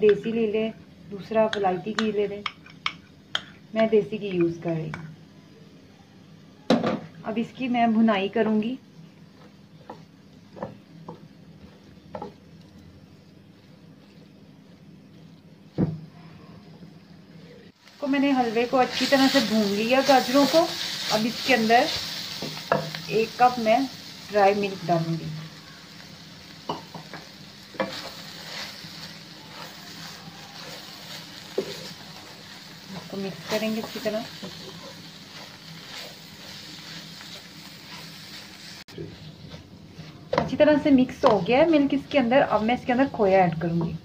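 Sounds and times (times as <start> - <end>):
faint sizzle: 0.0 - 44.0
low hum and faint hiss: 0.0 - 44.0
carrots cooking in a pan: 6.7 - 16.1, 17.7 - 44.0
wooden spoon knocking on pan: 9.8 - 11.3, 12.1 - 12.4, 26.6 - 28.0, 40.3 - 40.6, 41.2 - 41.5.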